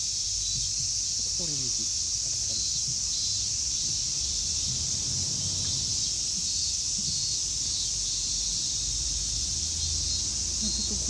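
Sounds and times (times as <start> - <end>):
insects shrilling: 0.0 - 11.0.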